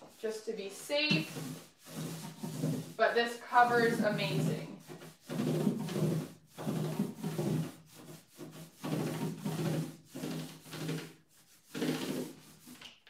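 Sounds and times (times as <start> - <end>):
paintbrush strokes on wood: 0.0 - 12.8.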